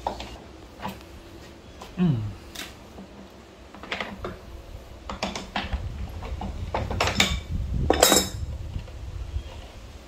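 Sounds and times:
wrench clanking against bolts: 0:07.0 - 0:08.4.

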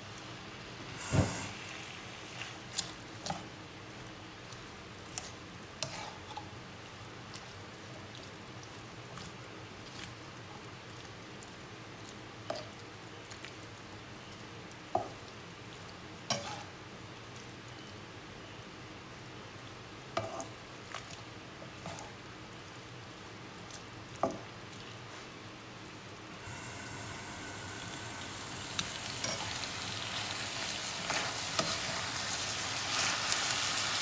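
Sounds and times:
meat and onions sizzling in a pan: 0:26.4 - 0:34.0.

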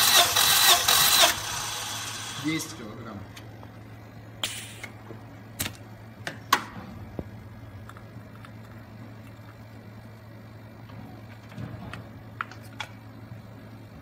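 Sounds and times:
steady low hum: 0:00.2 - 0:14.0.

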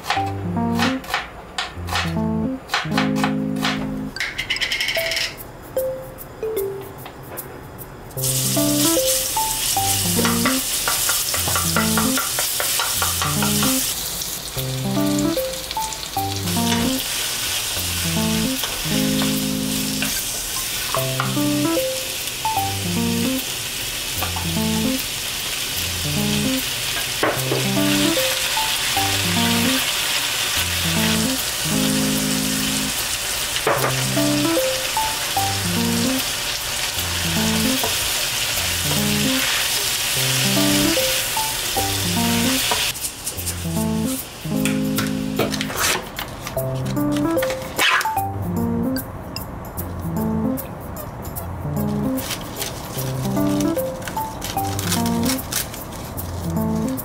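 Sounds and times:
bouncy music with plucked bass: 0:00.0 - 0:01.0, 0:01.8 - 0:04.2, 0:08.2 - 0:09.1, 0:09.8 - 0:10.6, 0:11.4 - 0:12.2, 0:13.0 - 0:13.8, 0:14.6 - 0:17.0, 0:17.8 - 0:20.1, 0:21.0 - 0:21.9, 0:22.6 - 0:23.4, 0:24.2 - 0:25.0, 0:25.8 - 0:26.6, 0:27.4 - 0:28.3, 0:29.0 - 0:29.8, 0:30.6 - 0:33.0, 0:33.8 - 0:34.7, 0:35.4 - 0:36.2, 0:37.0 - 0:37.8, 0:38.6 - 0:39.4, 0:40.2 - 0:41.1, 0:41.8 - 0:42.6, 0:43.4 - 0:45.7, 0:46.6 - 0:47.6, 0:48.2 - 0:49.2, 0:49.8 - 0:52.3, 0:53.0 - 0:55.4, 0:56.2 - 0:57.0
oil sizzling in a frying pan: 0:08.2 - 0:44.6.

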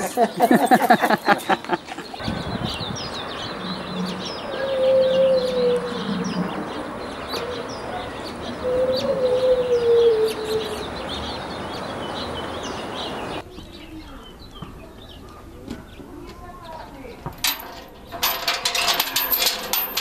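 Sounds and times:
small birds chirping: 0:00.0 - 0:17.4
long wavering bird call: 0:02.2 - 0:13.4.

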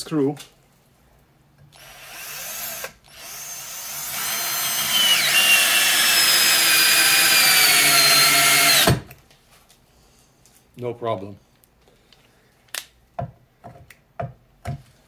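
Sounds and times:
cordless drill whining: 0:01.7 - 0:09.1.

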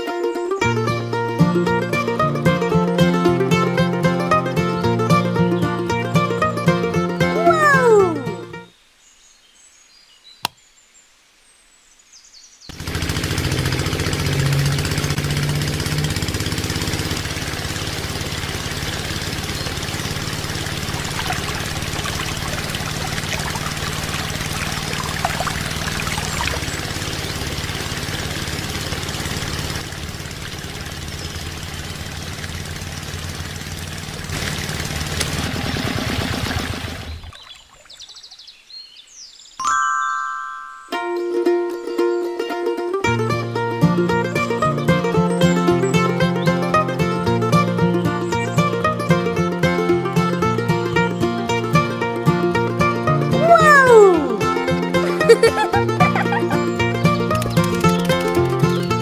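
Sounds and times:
water spraying and splashing: 0:12.8 - 0:38.3.

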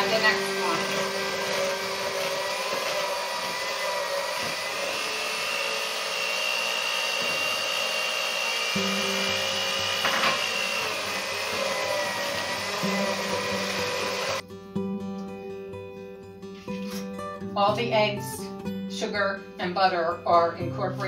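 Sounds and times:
electric hand mixer running: 0:00.0 - 0:14.4.

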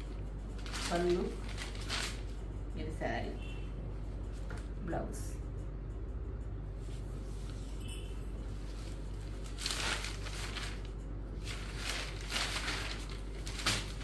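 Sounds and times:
steady low hum: 0:00.0 - 0:14.0
cloth rustling: 0:00.6 - 0:02.3, 0:06.8 - 0:14.0.

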